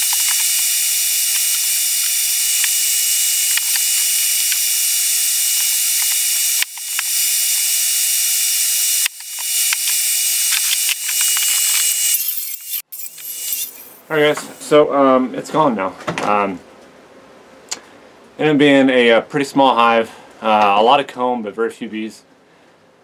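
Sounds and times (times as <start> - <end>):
debris clicking in hose: 0.0 - 4.7, 9.0 - 14.0
vacuum whine and hiss: 0.0 - 14.9.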